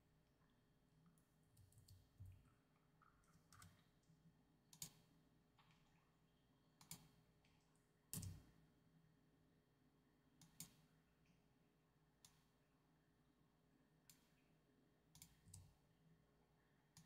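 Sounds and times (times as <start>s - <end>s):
computer mouse clicks: 4.7s - 5.0s, 6.8s - 7.1s, 10.4s - 10.8s, 15.2s - 15.7s.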